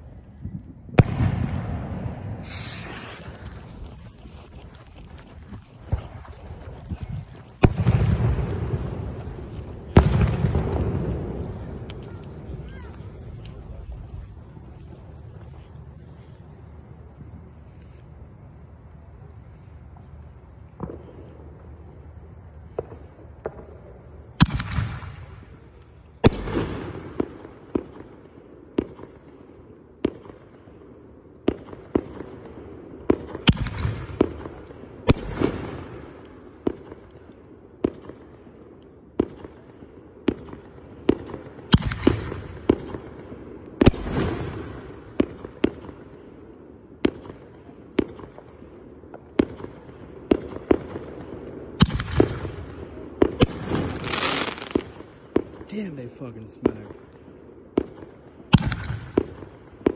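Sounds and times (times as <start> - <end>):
firework booms ringing out: 0.9 - 3.8, 7.0 - 13.8, 51.8 - 55.9
firework sharp bangs: 1.0 - 3.9, 7.5 - 13.8, 24.4 - 25.6, 26.2 - 28.2, 31.4 - 37.0, 40.2 - 43.2, 43.8 - 46.1, 49.1 - 56.0, 57.7 - 59.9.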